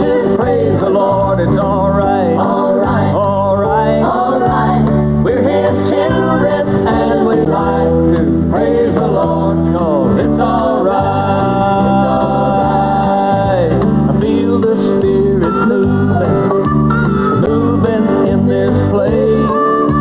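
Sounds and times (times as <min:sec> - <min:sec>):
group singing in harmony: 0:00.0 - 0:16.7, 0:17.4 - 0:20.0
bass guitar: 0:00.0 - 0:20.0
electric guitar: 0:00.0 - 0:20.0.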